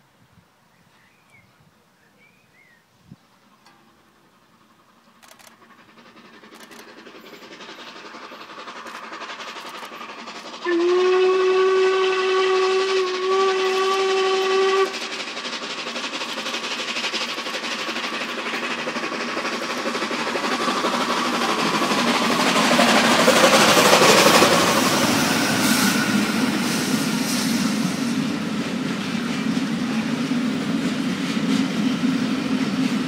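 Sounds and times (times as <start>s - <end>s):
steam locomotive running: 0.0s - 33.0s
steam whistle blast: 10.6s - 15.0s.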